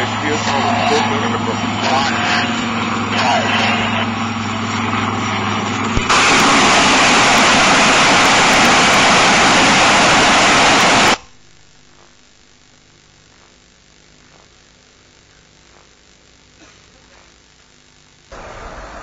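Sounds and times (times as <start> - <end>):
rocket salvo roar: 0.0 - 11.2
faint hiss: 13.4 - 19.0.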